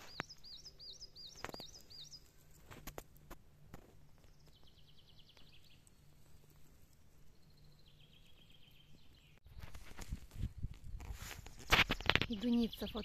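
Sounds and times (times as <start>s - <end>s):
faint songbird song: 0.0s - 3.0s, 3.8s - 13.0s.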